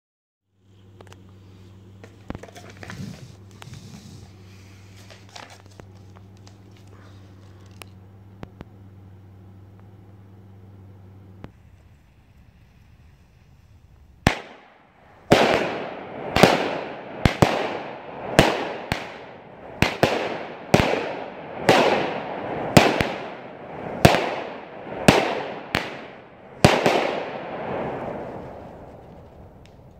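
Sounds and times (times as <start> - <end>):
firework hiss: 2.4 - 5.9, 11.4 - 29.9
firework bangs: 14.2 - 29.9.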